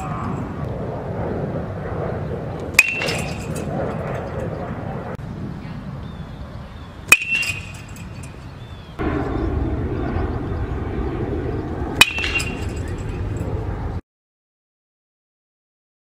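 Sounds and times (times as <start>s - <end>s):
metal bat hitting ball: 2.7s - 4.3s, 7.1s - 8.5s, 12.0s - 13.4s.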